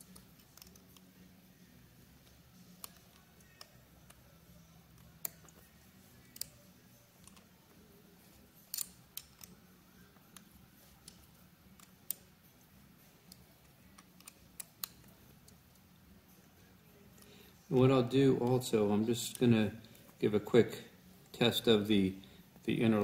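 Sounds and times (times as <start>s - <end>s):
faint low hum: 0.0s - 23.0s
hex key clicking on metal screws: 0.1s - 1.0s, 8.7s - 9.6s.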